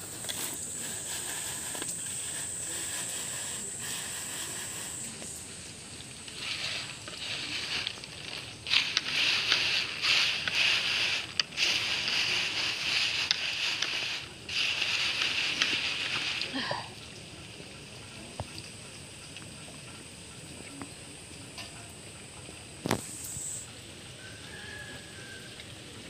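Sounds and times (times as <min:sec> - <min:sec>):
dry insects rustling on bamboo tray: 0:00.0 - 0:17.0.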